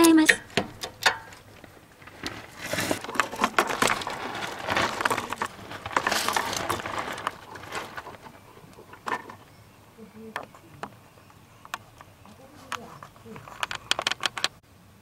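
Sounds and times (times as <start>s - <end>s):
floor jack clicking and rattling: 0.0s - 8.4s.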